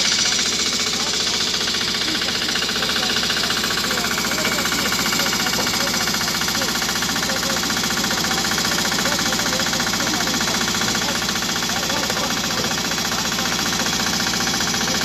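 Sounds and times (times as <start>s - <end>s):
small engine running: 0.0s - 15.0s.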